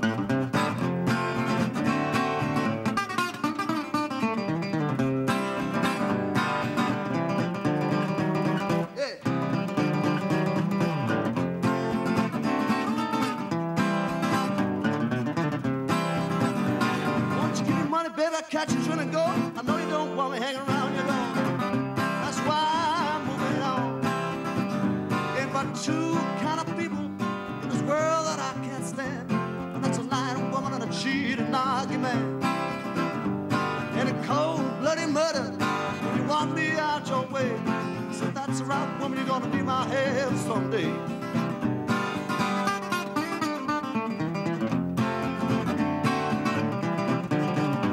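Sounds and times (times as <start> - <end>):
resonator guitar blues: 0.0 - 47.9.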